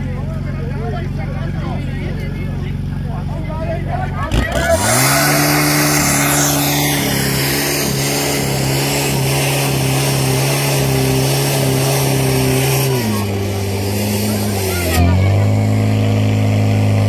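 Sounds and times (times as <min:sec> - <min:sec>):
pump engine running hard: 0:04.2 - 0:17.0.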